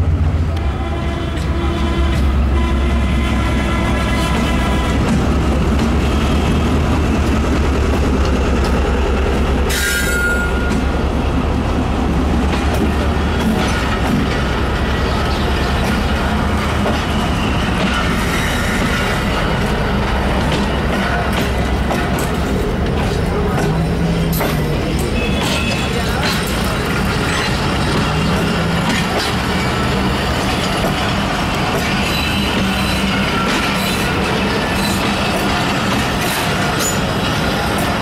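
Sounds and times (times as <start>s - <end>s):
diesel locomotive engine: 0.0s - 38.0s
train wheels rumbling on rails: 0.0s - 38.0s
wheel squeal: 9.7s - 10.7s.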